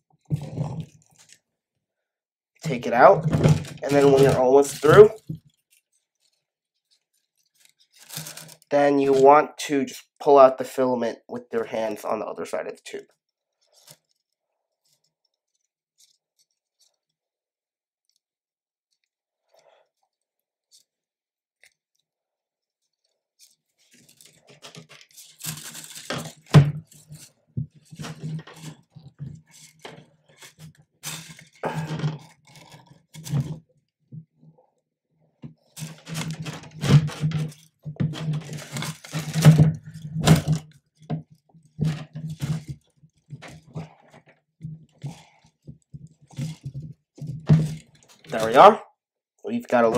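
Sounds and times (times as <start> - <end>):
plastic filament clicks and scratches: 3.5 - 9.3, 13.5 - 17.2, 18.0 - 18.3, 18.9 - 33.7, 35.4 - 48.6.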